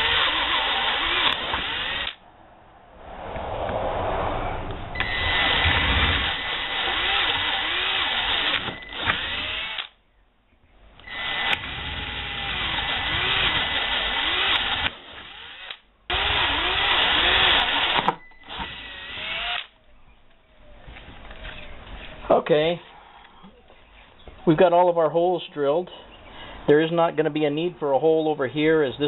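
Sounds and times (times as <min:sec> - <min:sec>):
cordless drill boring plastic: 0:00.0 - 0:02.2, 0:05.0 - 0:10.0, 0:11.0 - 0:19.7.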